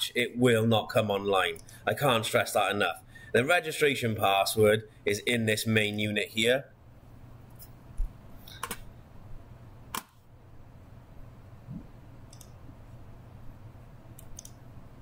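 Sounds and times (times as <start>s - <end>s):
faint low hum: 0.0s - 15.0s
computer mouse clicks: 7.6s - 8.9s, 12.3s - 12.6s, 14.2s - 14.6s.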